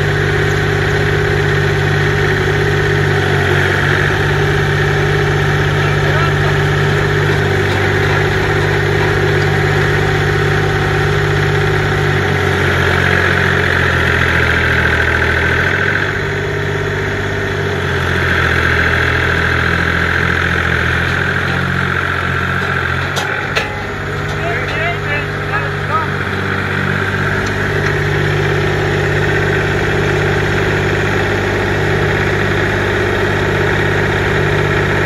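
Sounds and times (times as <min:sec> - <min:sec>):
tractor diesel engine running: 0:00.0 - 0:35.0.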